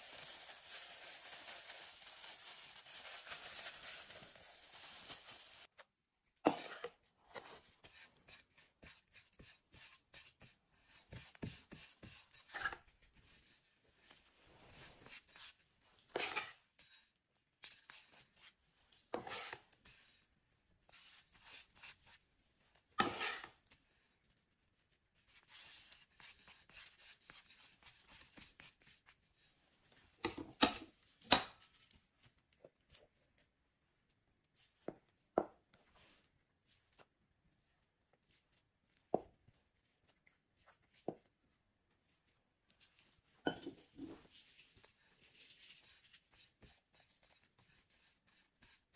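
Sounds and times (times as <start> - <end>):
metal spatula scraping cream: 6.5 - 23.8, 43.6 - 48.9.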